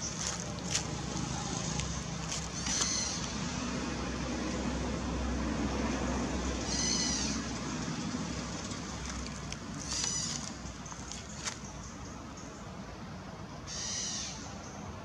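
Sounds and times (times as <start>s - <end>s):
steady background noise: 0.0s - 15.0s
baby monkey crying: 2.6s - 3.2s.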